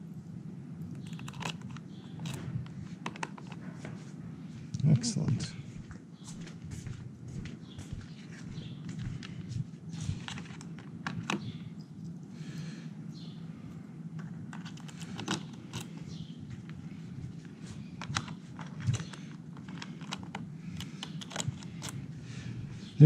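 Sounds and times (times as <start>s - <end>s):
plastic and metal clicks: 18.0s - 22.0s.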